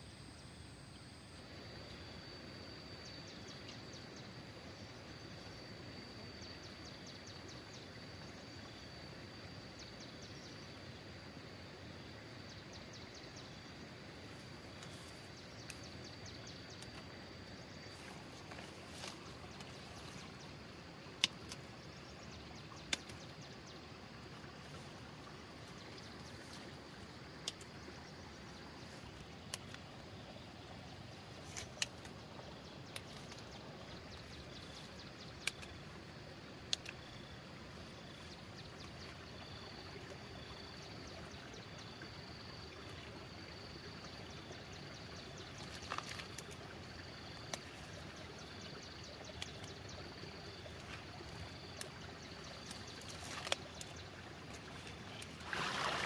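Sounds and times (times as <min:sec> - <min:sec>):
plant stems snapping: 0:21.2 - 0:21.7, 0:31.5 - 0:32.2, 0:52.6 - 0:53.9
outdoor hiss: 0:50.5 - 0:56.0.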